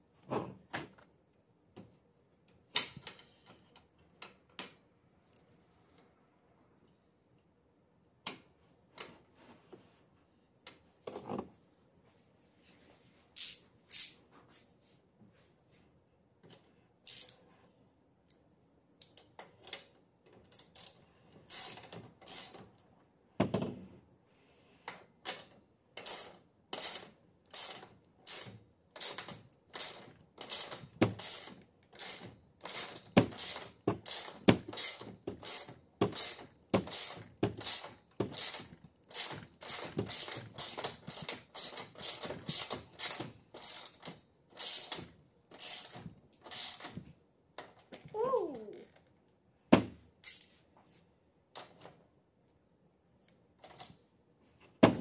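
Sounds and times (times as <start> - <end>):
ratchet wrench clicking: 13.4 - 14.2, 17.1 - 17.4, 20.5 - 22.6, 26.0 - 47.0.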